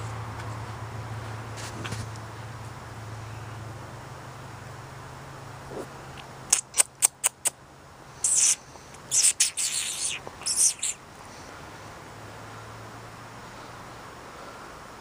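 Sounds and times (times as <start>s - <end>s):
tongue clicks: 5.8s - 7.6s, 8.2s - 11.0s
person hissing pss-pss: 6.5s - 7.5s, 8.2s - 11.0s.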